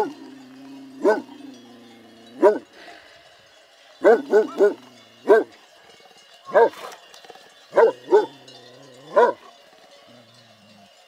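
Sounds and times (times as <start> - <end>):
dog barking: 1.0 - 1.3, 2.4 - 2.7, 4.0 - 5.5, 6.5 - 6.9, 7.7 - 8.3, 9.1 - 9.4.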